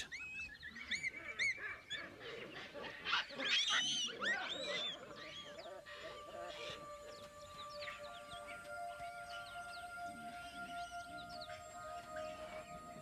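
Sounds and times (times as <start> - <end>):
baboons calling and screaming: 0.0 - 13.0
soft music with long held notes: 5.6 - 13.0.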